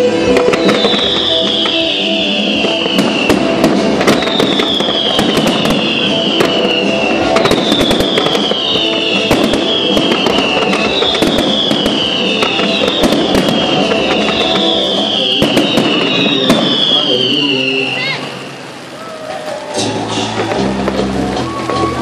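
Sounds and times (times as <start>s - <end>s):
fireworks bursting: 0.0s - 22.0s.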